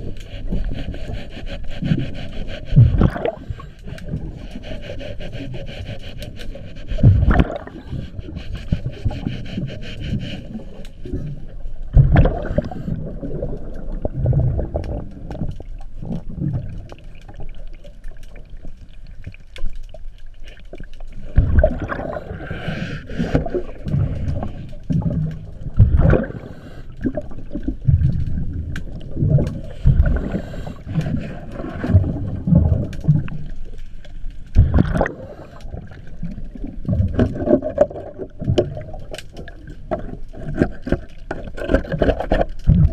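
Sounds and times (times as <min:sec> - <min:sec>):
scraping and small clicks: 0:00.0 - 0:07.5, 0:32.8 - 0:42.9
underwater regulator bubbles: 0:00.0 - 0:18.9, 0:21.1 - 0:33.6, 0:34.5 - 0:42.9.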